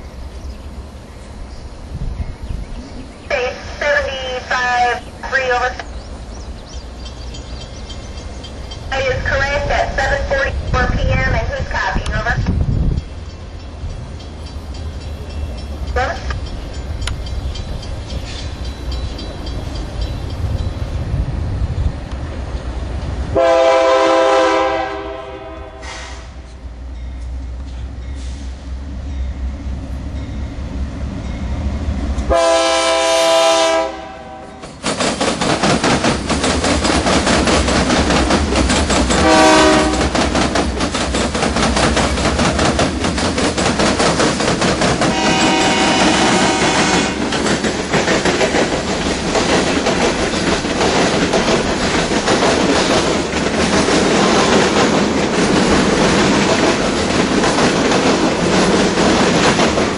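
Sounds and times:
freight train rumbling and clattering: 0.0s - 59.9s
locomotive horn blasts: 23.3s - 26.4s, 32.3s - 34.6s, 39.2s - 40.2s, 45.1s - 47.2s.

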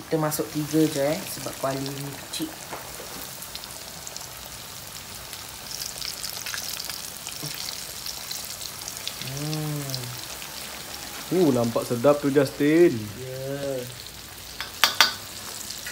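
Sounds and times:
chicken deep-frying in oil: 0.0s - 15.9s
person humming: 9.2s - 10.3s, 13.0s - 14.0s.

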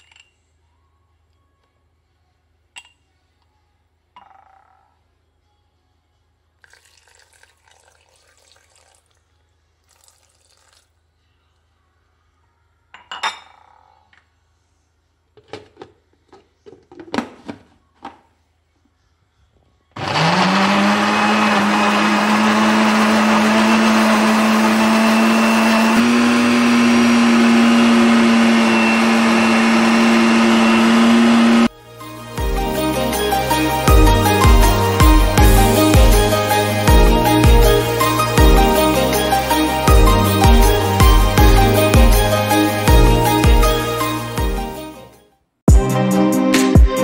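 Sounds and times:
electric blender motor humming: 20.0s - 31.7s.

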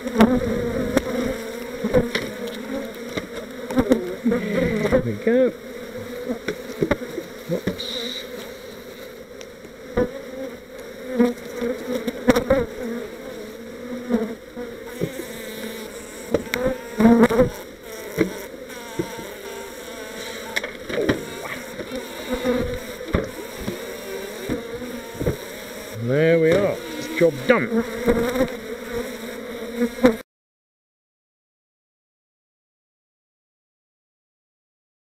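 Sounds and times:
bees buzzing: 0.0s - 30.2s
wooden hive parts knocking: 22.6s - 23.8s, 24.4s - 25.4s, 26.4s - 26.7s.

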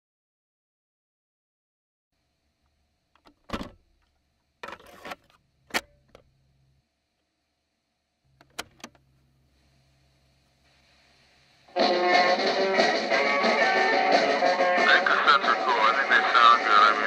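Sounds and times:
cassette deck buttons clicking: 8.4s - 9.0s.

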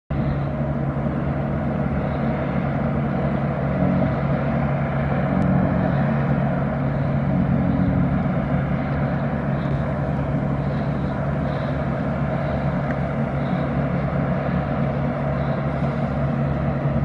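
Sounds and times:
low engine drone: 0.1s - 17.0s.

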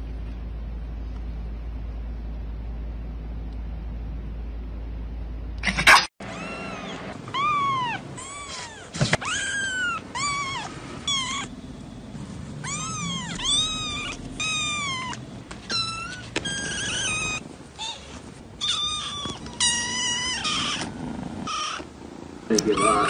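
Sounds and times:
kittens mewing: 5.7s - 11.6s, 12.5s - 23.0s.

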